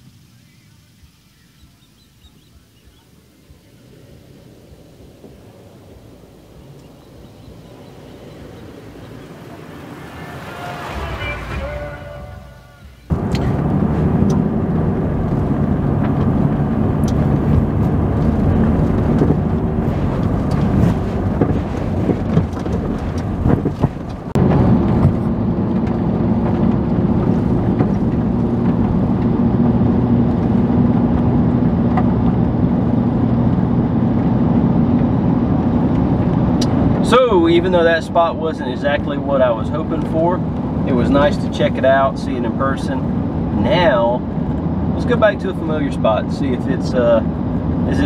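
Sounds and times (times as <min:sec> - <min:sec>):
car engine and road noise: 0:00.0 - 0:48.0
knocks and rattles: 0:17.1 - 0:29.3.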